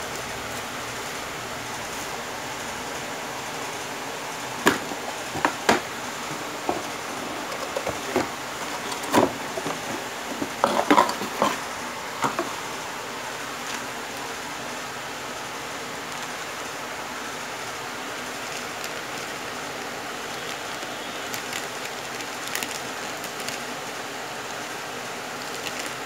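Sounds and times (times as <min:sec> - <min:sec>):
steady hiss: 0:00.0 - 0:26.0
plastic bag rustling: 0:02.8 - 0:12.9, 0:18.2 - 0:23.8
cardboard box knocks and rustles: 0:04.6 - 0:11.6.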